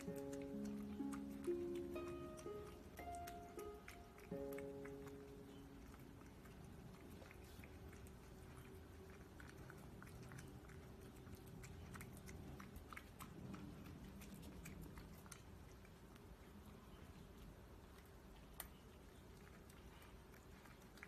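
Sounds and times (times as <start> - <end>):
cat chewing wet food: 0.0 - 21.0
small irregular clicks: 17.9 - 21.0.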